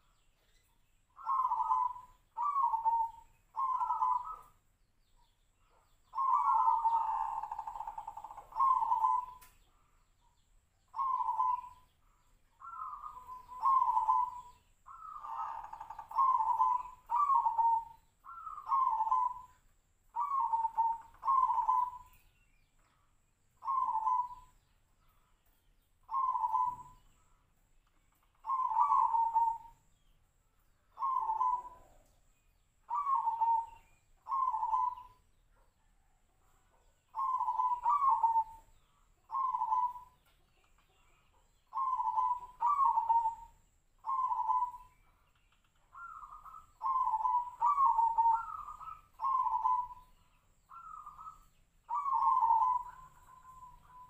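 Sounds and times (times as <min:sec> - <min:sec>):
dove cooing: 0:01.2 - 0:04.6, 0:06.0 - 0:09.7, 0:10.9 - 0:11.9, 0:12.6 - 0:22.3, 0:23.6 - 0:24.6, 0:26.0 - 0:27.1, 0:28.4 - 0:29.9, 0:30.9 - 0:32.3, 0:32.9 - 0:35.3, 0:37.0 - 0:40.4, 0:41.5 - 0:45.2, 0:45.8 - 0:54.0.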